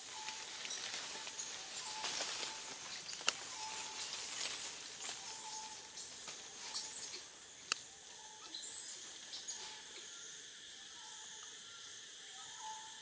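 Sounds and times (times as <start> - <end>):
faint chirps: 0.0 - 13.0.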